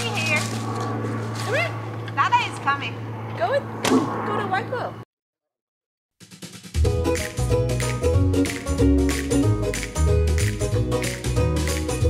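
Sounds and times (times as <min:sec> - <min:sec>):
drums and bass: 0:06.2 - 0:12.0
light percussion: 0:06.2 - 0:12.0.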